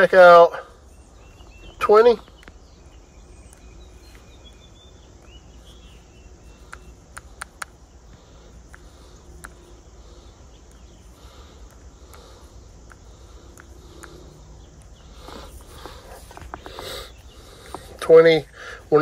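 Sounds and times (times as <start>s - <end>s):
faint chirping: 0.0s - 19.0s
stylus tapping touchscreen: 5.2s - 9.8s, 10.6s - 18.0s.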